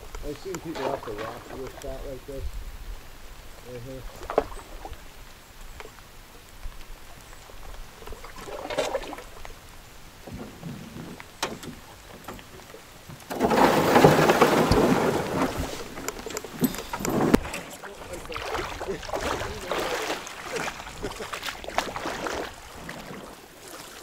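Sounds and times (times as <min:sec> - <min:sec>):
rushing water: 0:00.0 - 0:24.0
soft water swirls: 0:00.0 - 0:24.0
paddle knocks: 0:00.1 - 0:02.0, 0:10.2 - 0:23.3.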